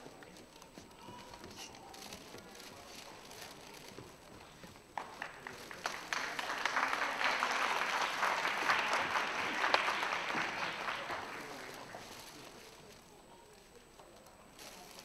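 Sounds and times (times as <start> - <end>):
audience applause: 5.0 - 12.3.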